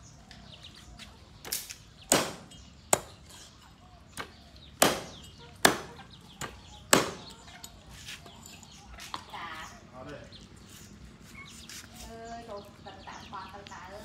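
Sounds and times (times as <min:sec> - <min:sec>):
cleaver chopping on wooden block: 0:02.1 - 0:03.2, 0:04.2 - 0:07.3.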